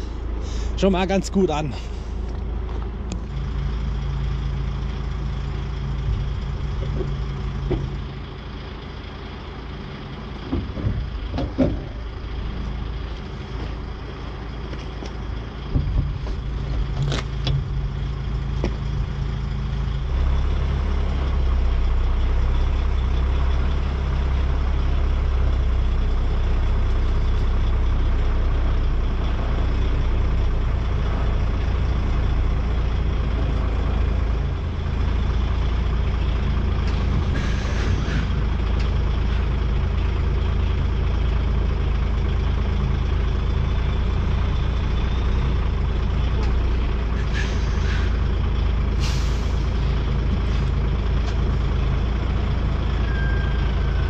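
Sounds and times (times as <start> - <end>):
truck diesel engine running: 0.0 - 54.0
air brakes hissing: 37.2 - 38.5, 47.2 - 48.2, 48.9 - 49.9.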